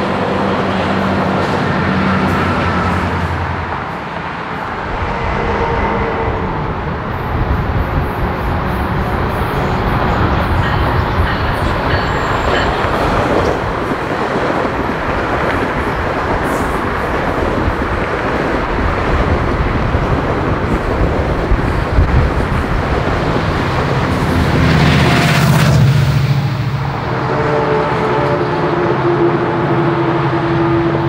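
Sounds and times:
diesel locomotive engine: 0.0 - 31.0
train wheels rushing on rail: 0.0 - 31.0.

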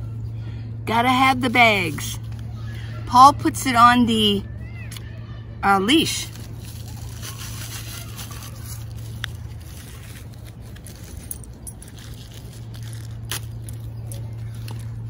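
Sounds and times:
steady low hum: 0.0 - 15.0
plastic bag crinkling: 6.2 - 15.0.

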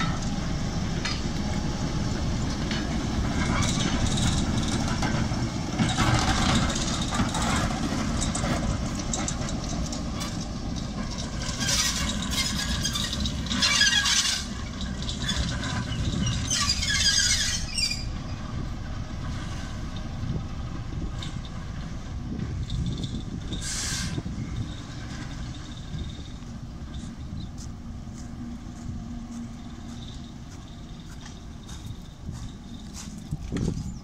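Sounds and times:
diesel locomotive engine running: 0.0 - 34.0
metal wheel squeal: 11.0 - 18.4, 22.6 - 27.6.

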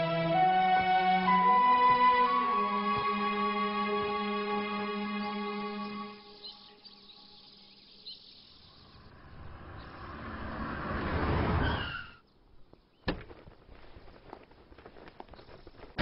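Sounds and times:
faint bird chirps: 5.2 - 10.0
car driving past: 8.8 - 12.2
tyre squeal: 11.6 - 12.2.

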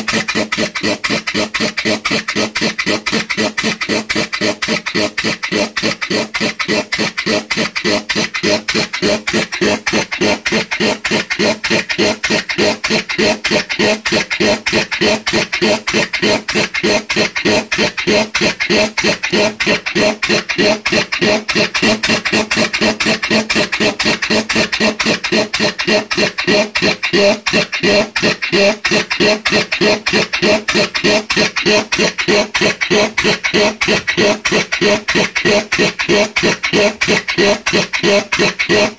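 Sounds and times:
air exhaust chuffing: 0.0 - 38.9
mechanical clatter: 0.0 - 38.9.

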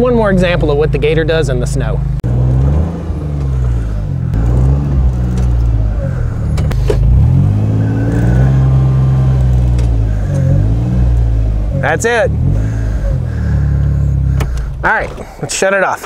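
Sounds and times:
utility vehicle engine revving: 0.0 - 15.5
tires spinning in snow: 2.3 - 15.0.

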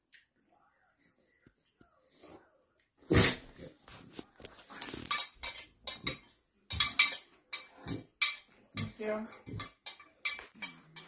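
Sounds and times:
utensils clattering: 4.5 - 11.0.

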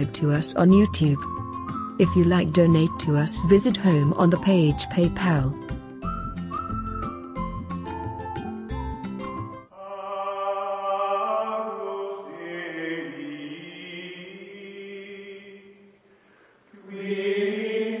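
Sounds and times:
choral chanting: 9.7 - 15.9, 16.7 - 18.0.

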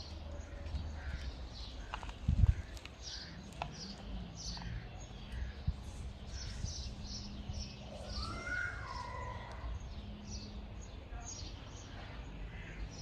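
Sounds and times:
small birds chirping: 0.0 - 13.0
wavering bird call: 7.9 - 9.7.

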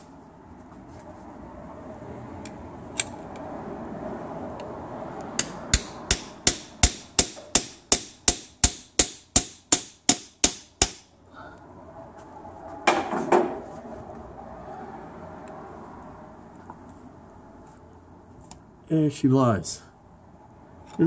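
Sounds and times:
hammer tapping on screwdriver: 5.4 - 11.0.

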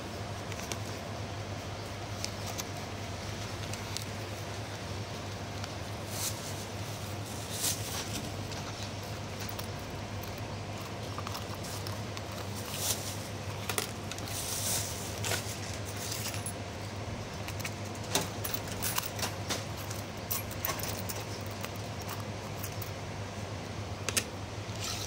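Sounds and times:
steady low hum: 0.0 - 25.0
plastic bag rustling: 10.9 - 16.5.

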